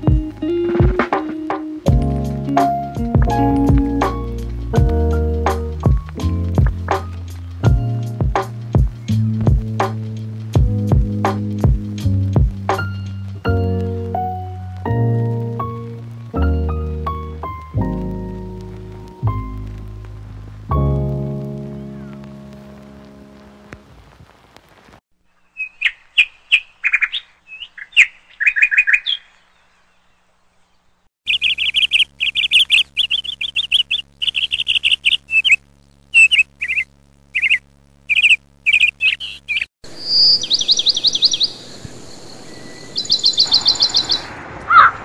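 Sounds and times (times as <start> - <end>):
small birds chirping: 0.0 - 14.2, 21.5 - 22.8, 25.3 - 45.0
steady hiss: 0.0 - 26.8, 31.3 - 45.0.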